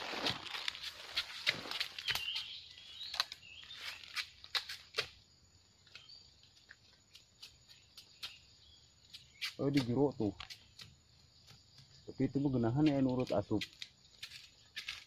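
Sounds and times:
tool digging in leaf litter: 0.0 - 5.1
bird chirps: 1.9 - 4.6, 5.8 - 12.8.

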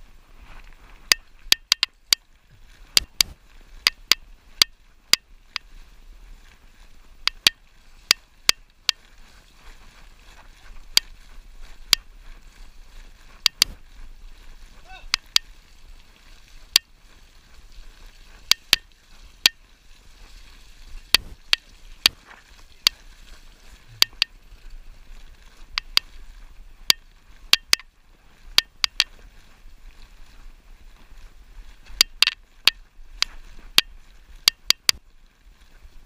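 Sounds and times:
bike clicks and knocks: 1.1 - 2.2, 3.0 - 5.2, 7.3 - 9.0, 13.4 - 13.8, 24.0 - 24.3, 27.5 - 27.8.

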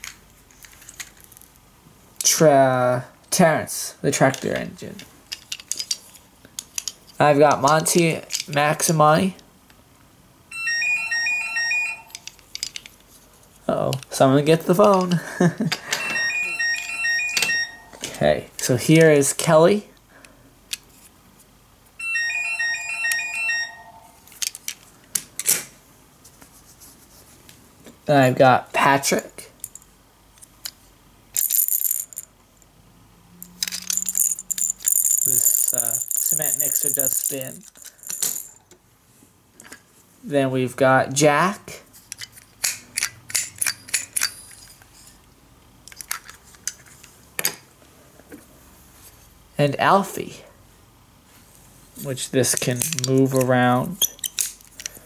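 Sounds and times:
phone ringtone beeping melody: 10.5 - 12.2, 16.0 - 18.0, 22.0 - 24.2.

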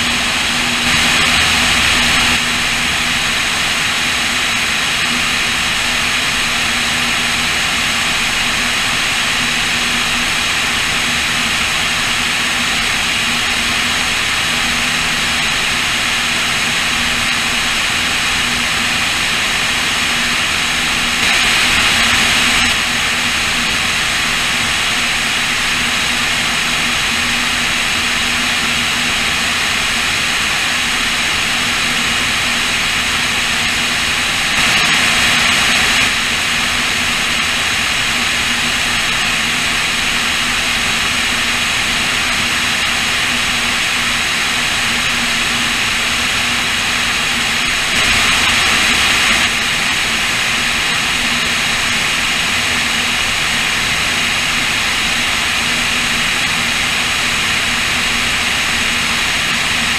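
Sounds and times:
airplane engines droning: 0.0 - 6.5, 18.6 - 26.0.

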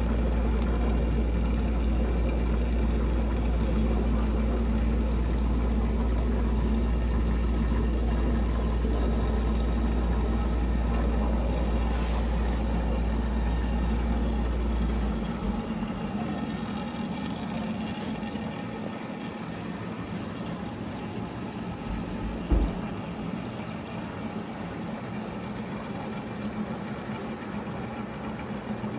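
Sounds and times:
pump hum: 0.0 - 28.9
water flowing: 0.0 - 28.9
short knock: 22.4 - 23.0.

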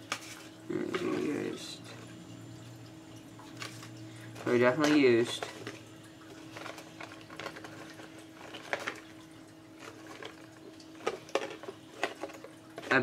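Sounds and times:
faint hum: 0.0 - 13.0
small objects clicking and rustling: 3.6 - 5.8, 6.4 - 9.1, 9.8 - 13.0.

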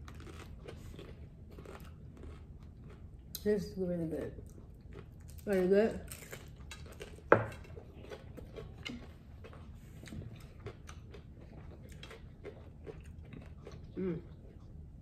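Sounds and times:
chewing crunchy taco shells: 0.0 - 3.5, 4.2 - 15.0.

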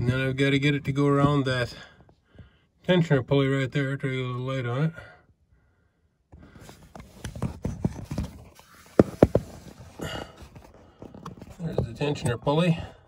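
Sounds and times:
hands scraping and knocking metal: 6.9 - 12.5.

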